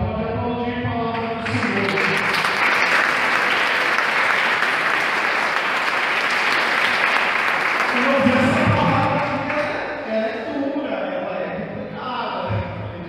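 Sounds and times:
audience clapping: 1.2s - 9.9s.

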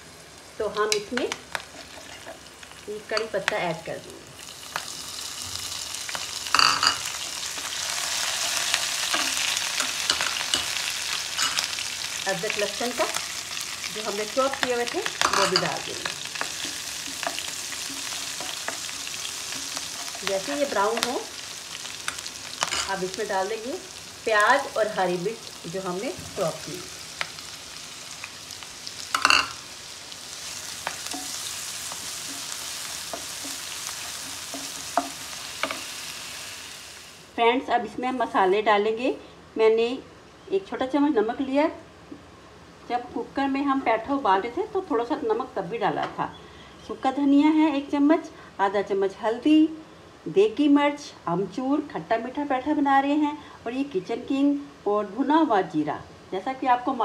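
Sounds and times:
curry leaves sizzling in hot oil: 0.0s - 38.4s.

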